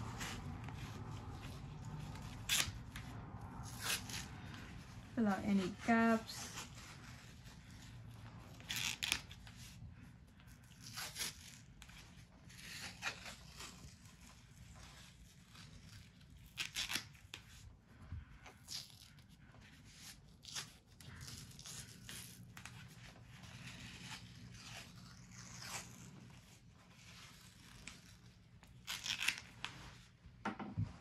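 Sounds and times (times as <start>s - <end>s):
tape ripping off roll: 1.9s - 4.4s, 8.6s - 9.6s, 15.4s - 17.4s, 27.4s - 29.8s.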